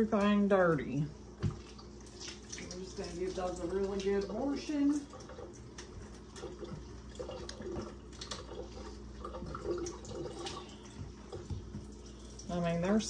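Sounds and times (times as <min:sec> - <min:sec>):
faucet water running into sink: 0:01.4 - 0:13.0.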